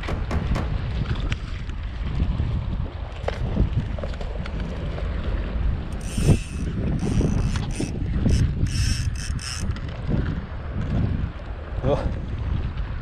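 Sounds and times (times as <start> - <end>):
wind rumbling on microphone: 0.0 - 13.0
ratchet-like rasps: 5.9 - 9.8.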